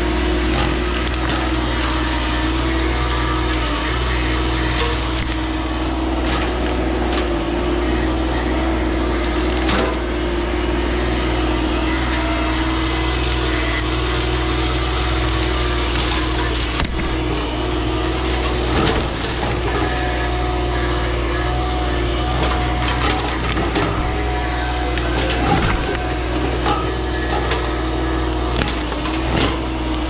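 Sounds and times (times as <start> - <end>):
diesel engine running: 0.0 - 30.0
mulching head grinding wood: 0.0 - 30.0
wood splintering cracks: 0.3 - 7.3, 12.8 - 17.2, 24.9 - 30.0.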